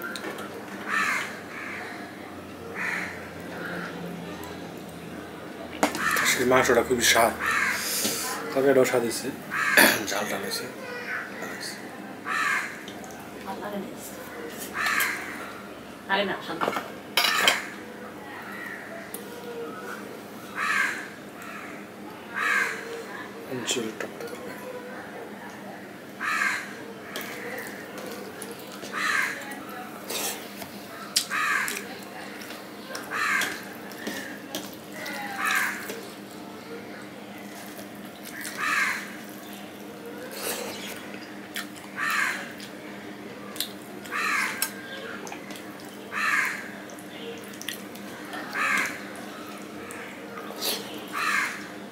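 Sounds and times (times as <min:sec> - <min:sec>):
crow cawing: 0:00.8 - 0:02.1, 0:02.7 - 0:04.0, 0:06.0 - 0:06.4, 0:07.2 - 0:08.0, 0:09.5 - 0:12.8, 0:14.7 - 0:15.6, 0:18.4 - 0:19.0, 0:20.5 - 0:23.0, 0:26.2 - 0:28.1, 0:28.9 - 0:29.5, 0:31.3 - 0:31.8, 0:33.0 - 0:34.4, 0:35.0 - 0:35.9, 0:38.3 - 0:39.2, 0:42.0 - 0:42.5, 0:44.1 - 0:45.1, 0:46.1 - 0:46.8, 0:48.4 - 0:49.1, 0:51.1 - 0:51.7.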